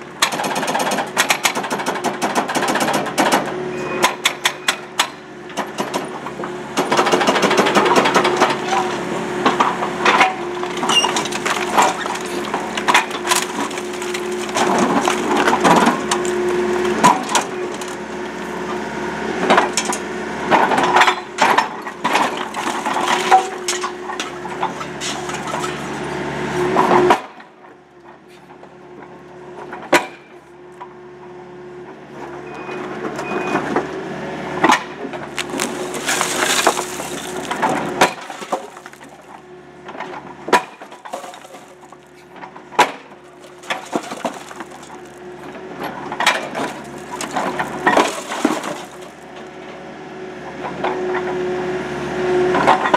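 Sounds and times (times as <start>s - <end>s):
hydraulic breaker pounding concrete: 0.0s - 27.7s, 34.6s - 49.8s, 52.5s - 52.9s
excavator engine running: 0.0s - 52.9s
broken concrete crunching and falling: 6.8s - 18.1s, 20.6s - 26.1s, 34.6s - 49.6s.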